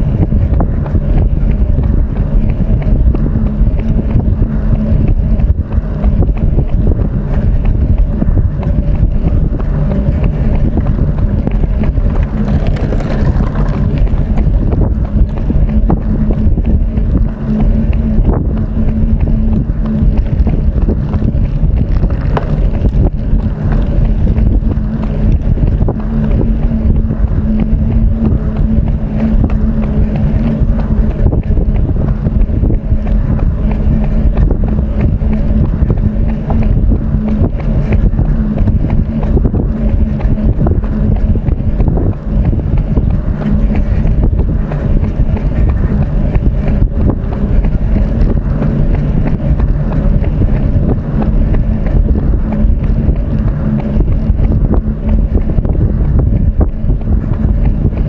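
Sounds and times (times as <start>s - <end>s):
steady low hum: 0.0s - 58.0s
wind buffeting microphone: 0.0s - 58.0s.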